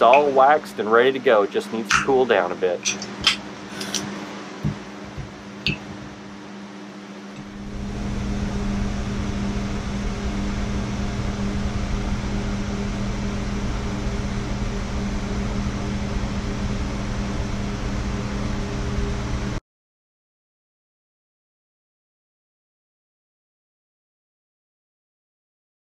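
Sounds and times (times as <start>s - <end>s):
mechanical hum with rushing noise: 0.0s - 19.6s.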